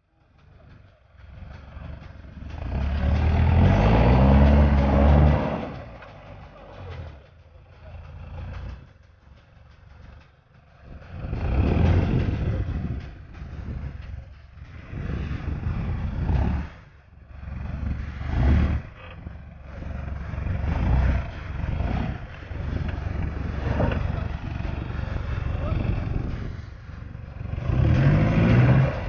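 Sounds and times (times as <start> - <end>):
car engine revving hard: 2.4 - 7.0, 11.1 - 13.8, 14.7 - 29.0.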